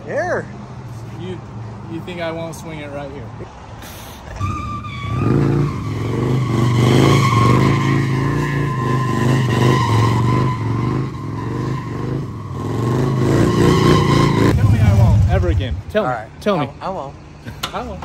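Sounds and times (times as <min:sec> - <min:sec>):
tyre spinning and squealing: 0:04.3 - 0:14.6
motorcycle engine revving: 0:05.1 - 0:15.8.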